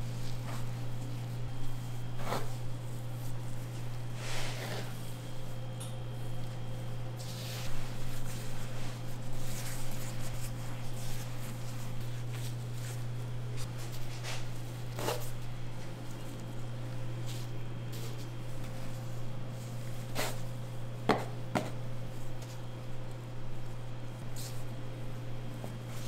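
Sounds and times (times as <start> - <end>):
hands squishing bread dough: 0.0 - 5.6, 6.3 - 21.5
steady low hum: 0.0 - 26.0.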